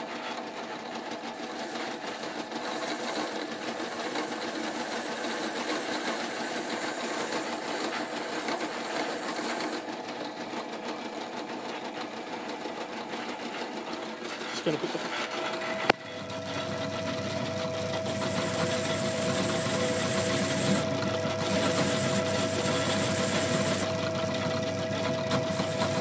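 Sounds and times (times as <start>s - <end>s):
wire brush scrubbing metal: 1.4s - 9.8s, 18.1s - 20.8s, 21.4s - 23.9s, 25.3s - 26.0s
electric motor humming: 1.4s - 9.9s, 14.6s - 24.2s, 24.8s - 26.0s.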